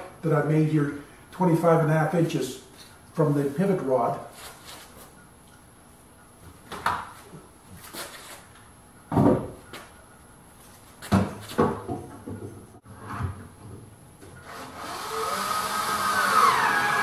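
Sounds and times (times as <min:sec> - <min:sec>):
cordless drill driving a screw: 0:14.4 - 0:17.0.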